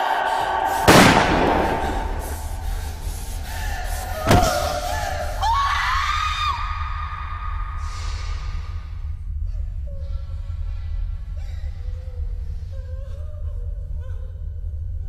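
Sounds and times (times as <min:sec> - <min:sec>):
low hum: 0:00.0 - 0:15.0
hard slam: 0:00.7 - 0:05.3
woman whimpering: 0:09.5 - 0:14.6.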